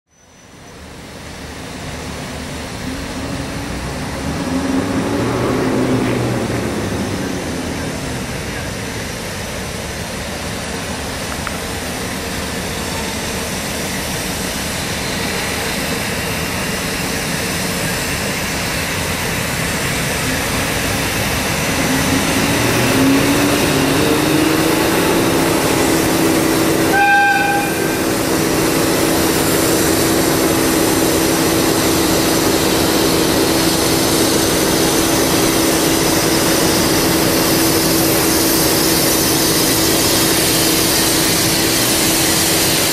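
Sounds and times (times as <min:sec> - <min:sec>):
diesel locomotive engine running: 0:00.2 - 0:42.9
locomotive horn toot: 0:26.8 - 0:28.2.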